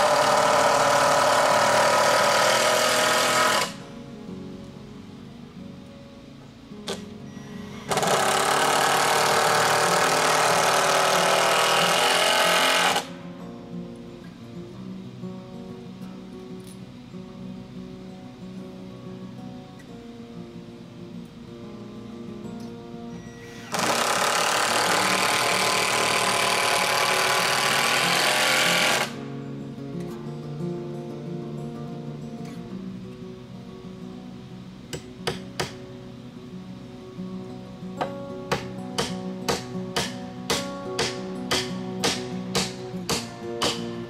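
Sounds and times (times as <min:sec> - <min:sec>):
power drill running: 0:00.0 - 0:03.8, 0:07.4 - 0:13.1, 0:23.3 - 0:29.2
background music: 0:36.9 - 0:44.0.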